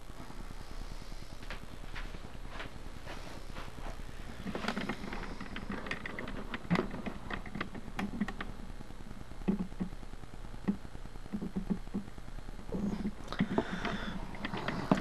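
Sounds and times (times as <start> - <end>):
handling clicks and ticks: 4.4 - 8.5.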